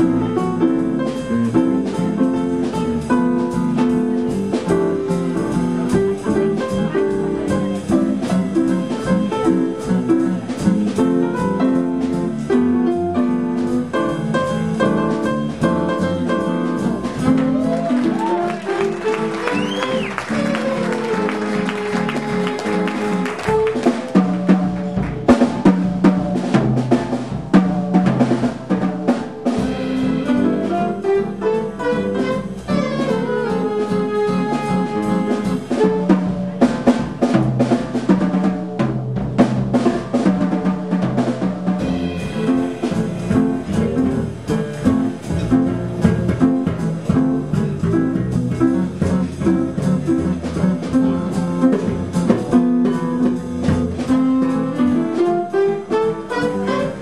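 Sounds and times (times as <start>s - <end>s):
bass: 0.0s - 57.0s
drum kit steady beat: 0.0s - 57.0s
piano: 0.0s - 57.0s
flute: 15.4s - 26.3s, 26.9s - 36.8s, 40.6s - 44.2s, 54.0s - 57.0s
saxophones: 18.7s - 23.8s, 29.1s - 35.8s, 41.8s - 45.0s, 54.2s - 57.0s.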